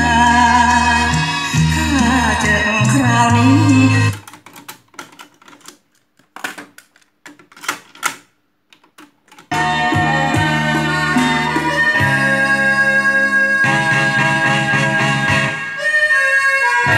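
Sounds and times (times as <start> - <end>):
music from cassette deck: 0.0 - 5.7, 9.3 - 16.9
cassette deck keys clicking: 4.1 - 9.6.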